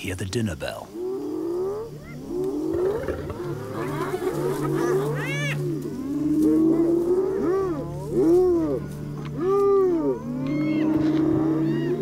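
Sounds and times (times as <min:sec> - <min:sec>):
hyenas whooping and whining: 0:01.0 - 0:12.0.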